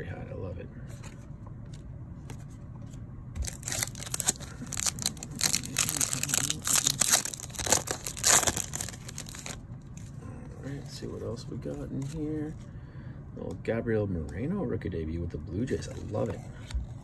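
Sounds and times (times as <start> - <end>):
foil wrapper crinkling and tearing: 3.4 - 9.6.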